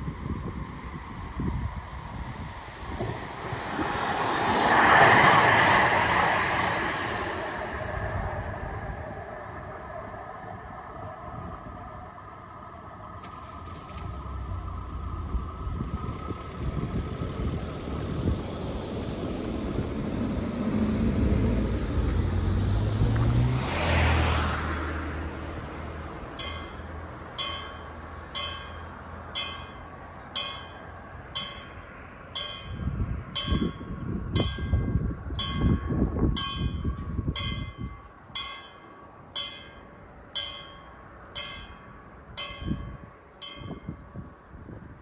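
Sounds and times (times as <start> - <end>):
passing vehicle: 0.0 - 45.0
level-crossing warning bell: 26.4 - 44.2.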